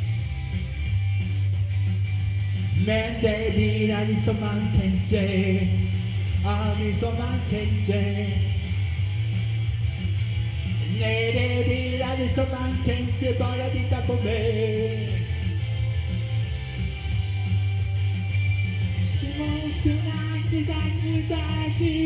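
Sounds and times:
electric guitar: 0.0 - 22.0
man singing: 2.8 - 8.6, 10.9 - 15.3, 19.1 - 22.0.

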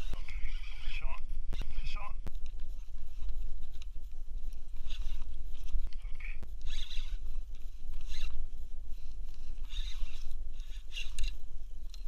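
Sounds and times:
steady low rumble: 0.0 - 12.0
fishing reel raspy bursts: 6.6 - 7.2, 9.7 - 11.4.

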